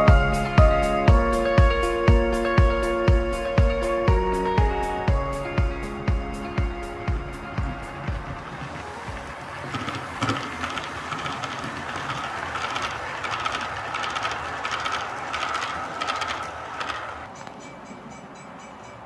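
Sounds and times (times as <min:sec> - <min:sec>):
rail joint clicks: 0:07.5 - 0:19.0
model train wheels rattling on rail: 0:08.3 - 0:19.0.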